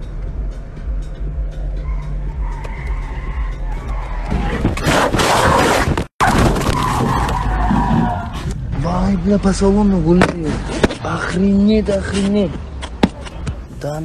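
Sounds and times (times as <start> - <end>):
tyres screeching and skidding: 1.8 - 8.6.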